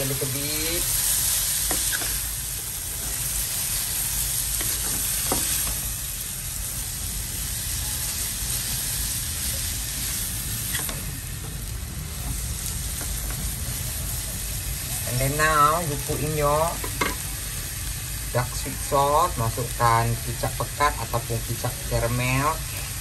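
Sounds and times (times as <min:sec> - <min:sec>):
food sizzling in hot oil: 0:00.0 - 0:23.0.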